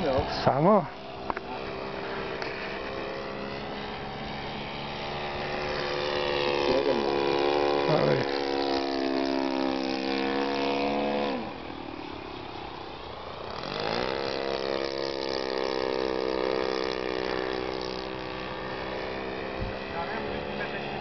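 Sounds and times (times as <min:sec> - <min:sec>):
model plane engine running: 0:00.0 - 0:21.0.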